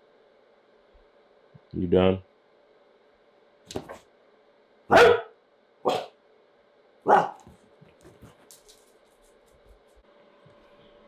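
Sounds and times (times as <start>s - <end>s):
dog barking: 4.9s - 6.2s, 7.0s - 7.6s.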